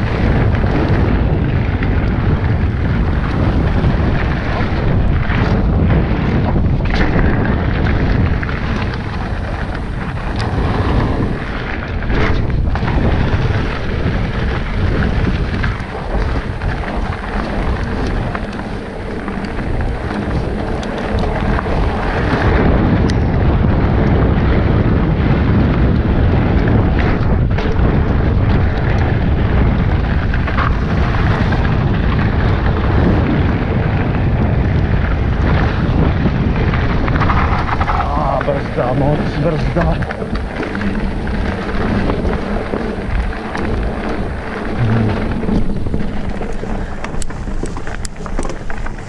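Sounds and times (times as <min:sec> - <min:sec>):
bike knocking over bumps: 0:00.0 - 0:24.2
tyres rumbling on dirt trail: 0:00.0 - 0:49.0
wind buffeting microphone: 0:00.0 - 0:49.0.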